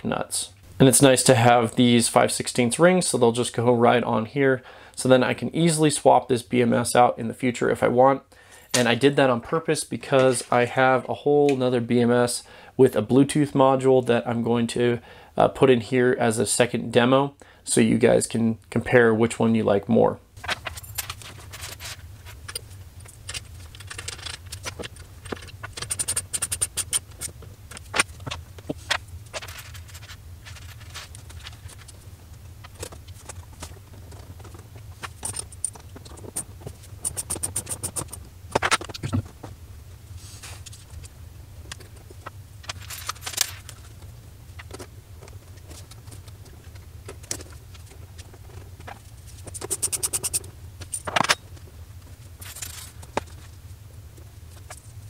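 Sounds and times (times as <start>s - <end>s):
steady low hum: 17.4s - 55.0s
metal bolts and nuts clinking: 20.4s - 27.3s, 35.1s - 36.4s, 42.7s - 43.8s, 49.5s - 51.4s, 52.4s - 53.1s
ratchet wrench clicks: 49.6s - 50.4s.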